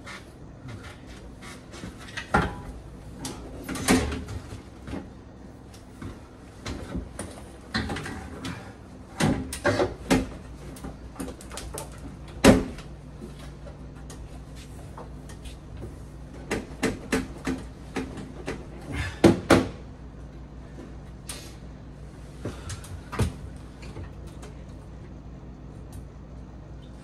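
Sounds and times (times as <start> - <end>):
boiler and metal bracket clanking: 1.9 - 4.6.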